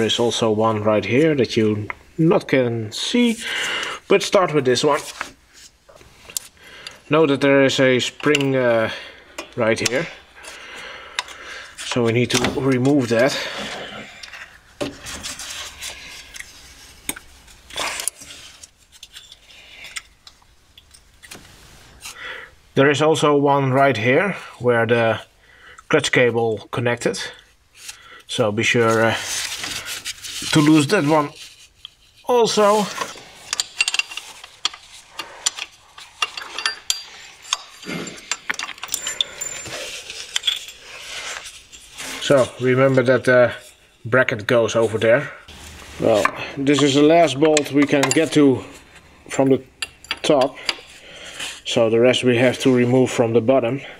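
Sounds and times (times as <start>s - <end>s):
metallic clicks and scrapes: 15.2s - 22.2s, 29.3s - 44.0s
metal hand tools clinking on bolts: 32.4s - 42.4s, 46.6s - 48.5s, 49.4s - 50.9s.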